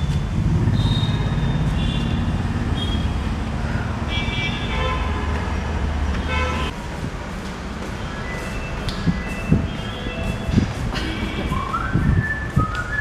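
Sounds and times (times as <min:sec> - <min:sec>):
road traffic: 0:00.0 - 0:13.0
vehicle horn toots: 0:00.7 - 0:03.2, 0:04.1 - 0:05.3, 0:06.2 - 0:06.7, 0:09.6 - 0:11.8.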